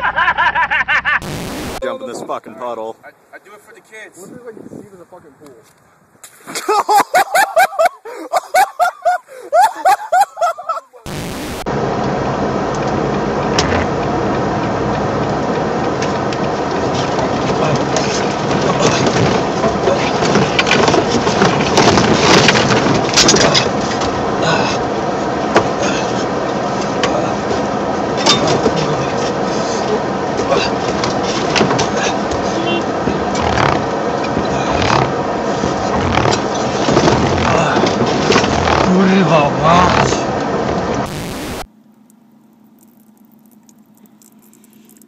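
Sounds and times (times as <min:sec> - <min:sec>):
truck road and engine noise: 0:00.0 - 0:45.0
knocks and rattles: 0:16.0 - 0:24.2, 0:30.8 - 0:38.9.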